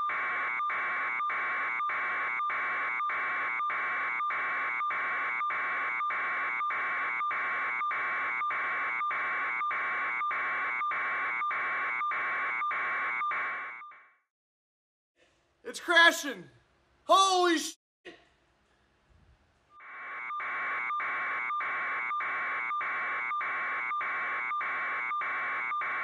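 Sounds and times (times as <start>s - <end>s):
pulsing electronic alarm buzzer: 0.0s - 14.1s, 19.8s - 26.0s.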